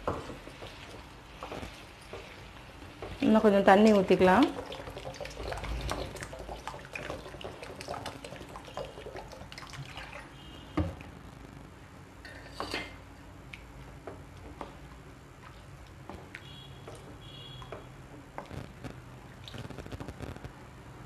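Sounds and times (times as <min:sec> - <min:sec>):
wooden spatula scraping pan: 0:00.0 - 0:04.4
water pouring into pan: 0:04.0 - 0:10.5.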